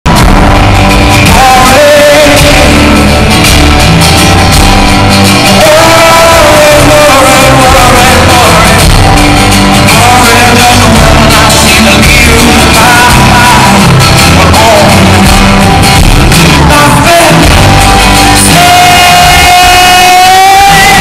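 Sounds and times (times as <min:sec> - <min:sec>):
bass line: 0:00.0 - 0:21.0
drums: 0:00.0 - 0:21.0
strummed guitars: 0:00.1 - 0:21.0
man singing: 0:01.2 - 0:03.4, 0:05.4 - 0:09.0, 0:09.8 - 0:15.6, 0:16.2 - 0:21.0.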